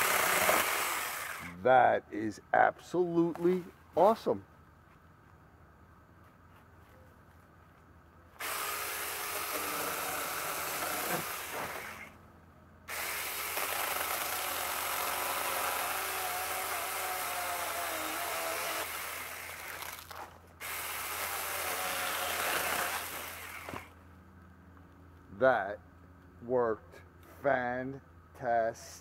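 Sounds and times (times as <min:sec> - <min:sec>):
electric chainsaw cutting: 0:00.0 - 0:01.6, 0:08.4 - 0:12.2, 0:12.9 - 0:24.0.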